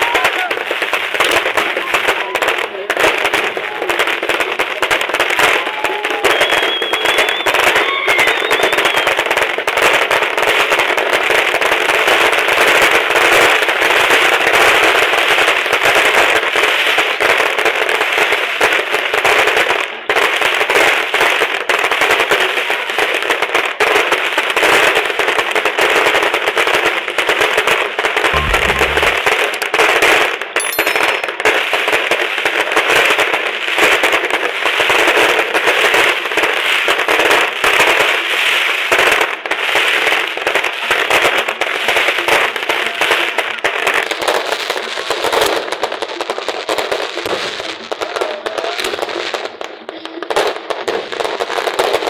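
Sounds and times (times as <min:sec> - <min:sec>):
fireworks crackling bangs: 0:00.0 - 0:30.0, 0:30.6 - 0:52.0.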